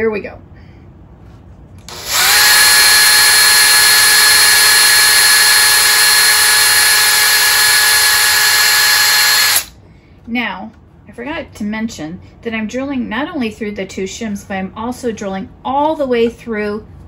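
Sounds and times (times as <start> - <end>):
cordless drill whining: 1.8 - 9.7.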